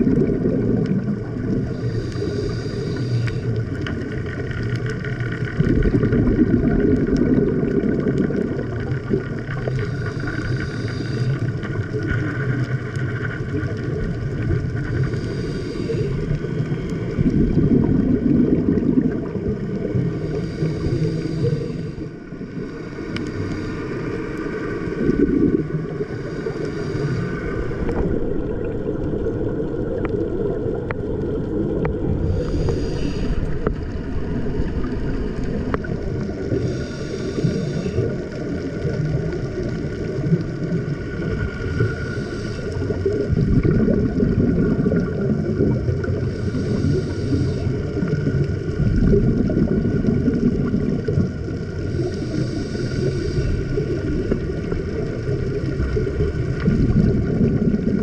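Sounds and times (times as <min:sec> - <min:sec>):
faint steady hum: 0:00.0 - 0:58.0
gurgle of exhaled bubbles: 0:00.0 - 0:58.0
regulator inhalation hiss: 0:01.6 - 0:03.6, 0:09.5 - 0:11.6, 0:14.8 - 0:16.6, 0:20.0 - 0:24.8, 0:26.0 - 0:28.0, 0:32.2 - 0:33.8, 0:36.4 - 0:38.2, 0:41.8 - 0:43.0, 0:46.2 - 0:48.1, 0:51.8 - 0:54.4.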